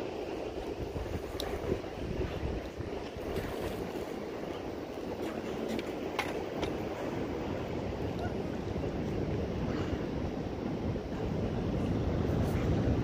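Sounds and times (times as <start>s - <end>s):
ocean surf: 0.0s - 13.0s
wind buffeting microphone: 0.0s - 13.0s.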